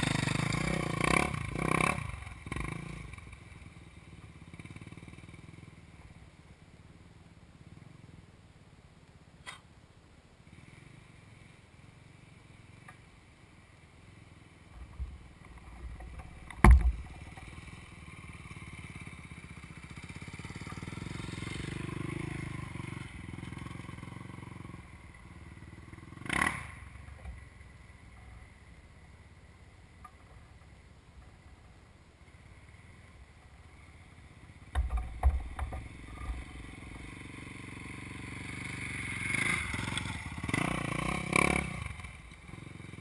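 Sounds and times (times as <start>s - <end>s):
dirt bike engine passing: 0.0s - 7.0s, 10.4s - 29.7s, 32.3s - 43.0s
idling dirt bike hum: 0.0s - 43.0s
sharp thump: 16.5s - 17.2s.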